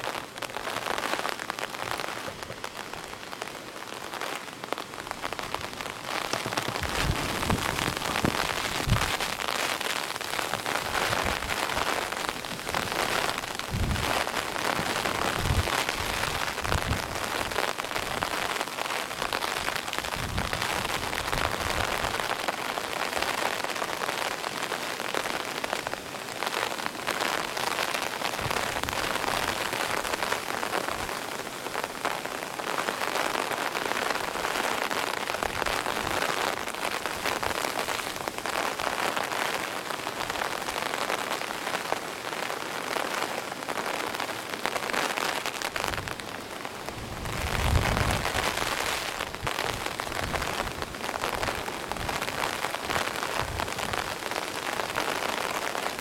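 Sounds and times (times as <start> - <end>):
heavy rain on wooden boardwalk: 0.0 - 56.0
wind gusts on microphone: 5.3 - 18.4, 19.2 - 22.3, 45.8 - 54.2.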